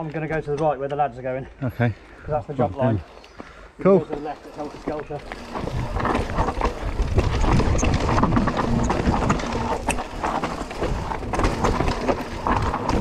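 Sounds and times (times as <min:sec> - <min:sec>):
tyres crunching over stones: 0:02.7 - 0:13.0
bike rattling and clicking: 0:03.9 - 0:13.0.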